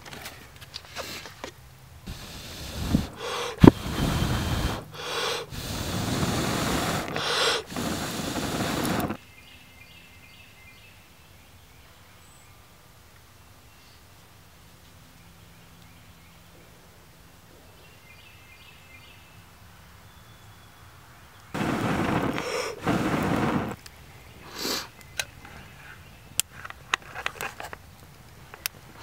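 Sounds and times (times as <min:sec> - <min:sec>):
faint outdoor background: 0:00.0 - 0:29.0
embers cracking: 0:02.1 - 0:09.2, 0:21.5 - 0:24.1, 0:26.4 - 0:29.0
person blowing on coals: 0:02.1 - 0:09.2, 0:21.6 - 0:23.8, 0:24.4 - 0:25.0.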